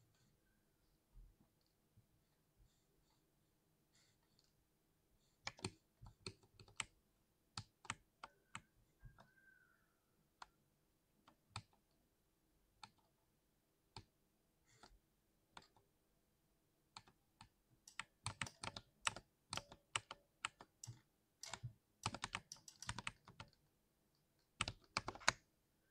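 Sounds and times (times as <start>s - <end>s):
keyboard typing: 5.4s - 7.0s, 7.6s - 9.4s, 11.2s - 11.9s, 17.0s - 23.6s, 24.5s - 25.5s.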